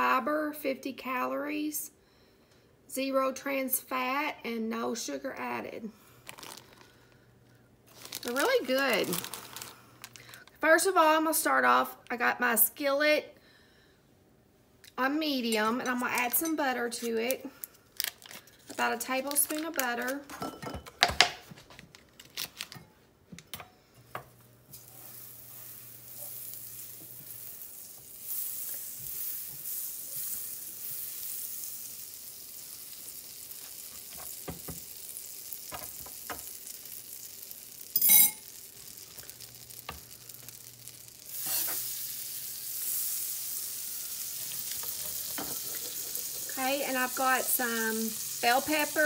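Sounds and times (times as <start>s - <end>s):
butter sizzling in skillet: 24.2s - 49.0s.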